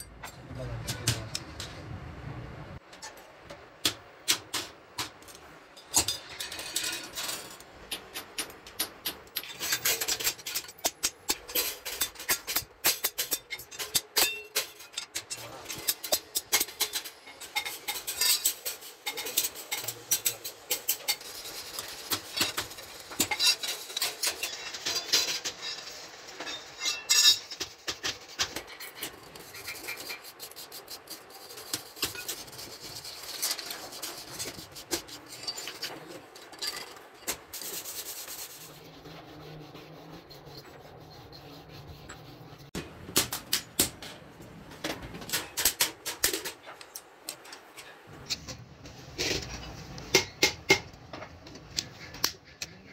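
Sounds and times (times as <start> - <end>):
metal scraping and filing: 5.8 - 42.8.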